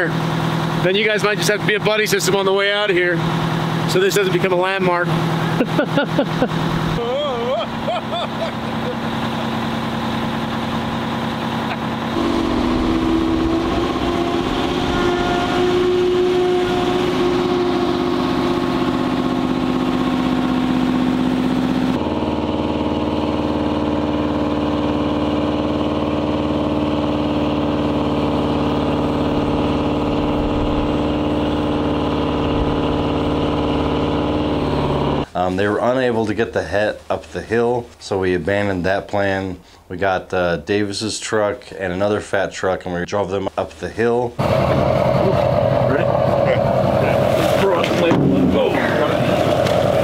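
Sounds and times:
heavy diesel truck engine: 0.0 - 7.0, 7.6 - 35.3, 44.4 - 50.0.

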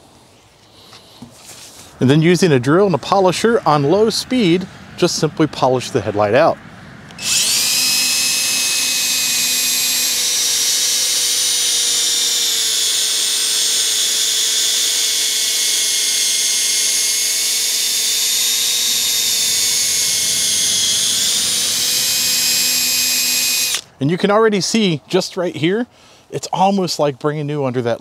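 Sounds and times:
electric drill motor whine: 7.1 - 23.9.

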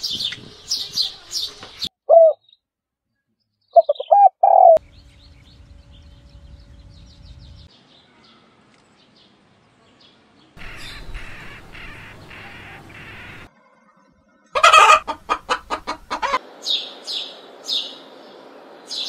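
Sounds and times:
small birds chirping: 0.0 - 19.0
dove cooing: 2.1 - 2.4, 3.8 - 4.8, 10.6 - 13.5.

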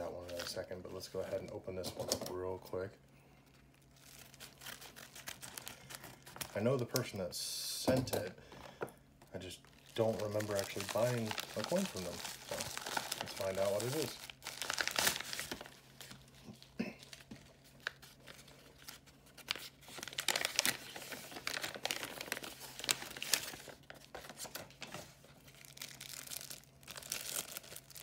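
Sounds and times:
plastic bag crinkling: 3.4 - 7.2, 9.4 - 28.0
envelope tearing: 3.9 - 6.6, 9.8 - 24.9, 25.5 - 28.0.

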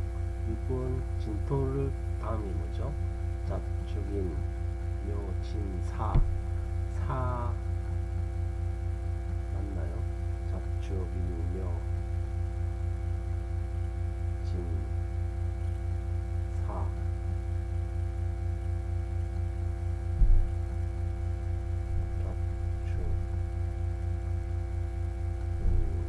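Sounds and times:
electrical hum and buzz: 0.0 - 26.0
short low thump: 6.0 - 6.6, 20.1 - 20.6, 25.6 - 26.0.

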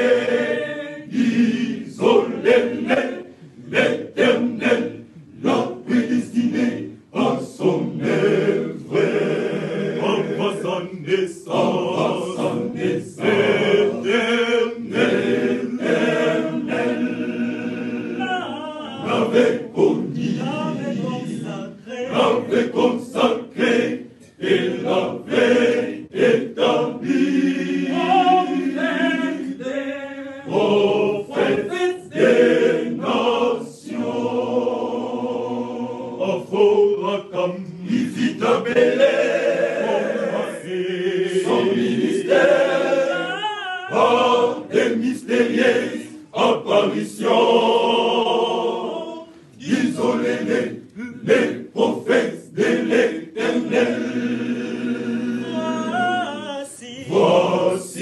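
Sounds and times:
men's choir singing: 0.0 - 58.0.

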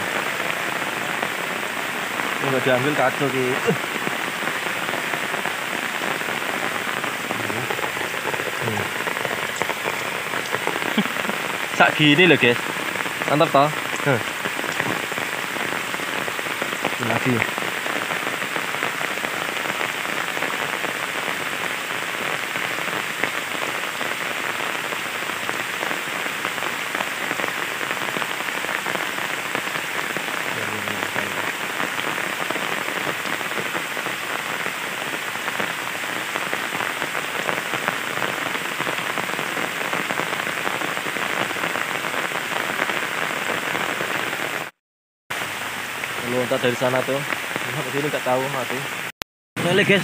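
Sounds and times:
heavy rain on water: 0.0 - 50.0.

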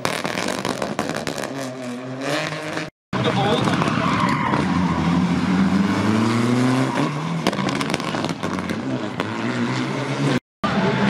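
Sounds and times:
rally car engine accelerating: 0.1 - 11.0.

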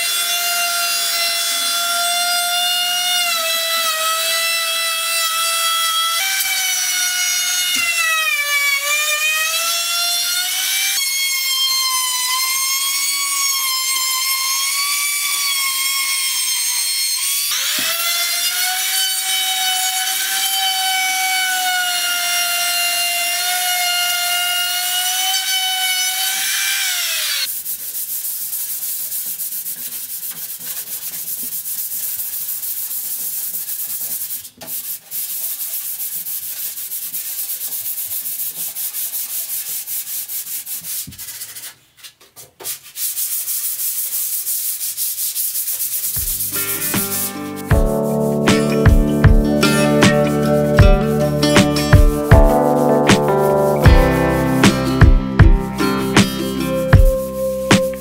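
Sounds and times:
sanding on wood: 23.4 - 41.8, 42.6 - 49.2.

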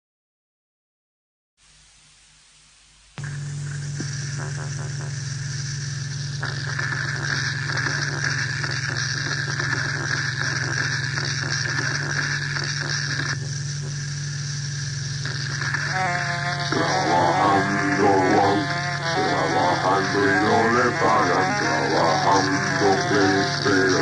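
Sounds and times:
rapidly flickering crackle: 1.6 - 24.0
high buzzing layer: 3.2 - 24.0
low machine-like drone: 16.6 - 24.0.

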